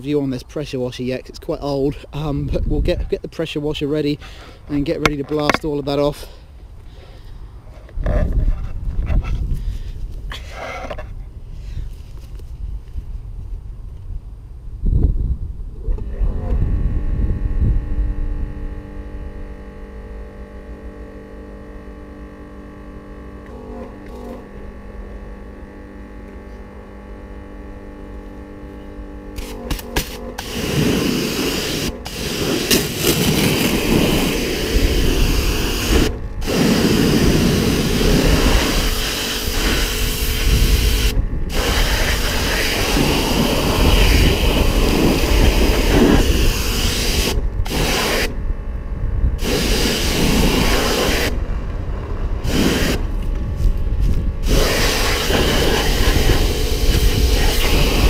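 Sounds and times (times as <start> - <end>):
pressure washer motor humming: 19.2 - 48.4, 49.4 - 58.0.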